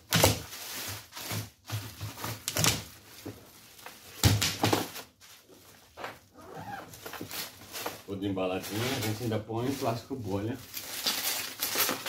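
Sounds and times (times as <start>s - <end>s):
plastic sheeting rustling: 0.0s - 12.0s.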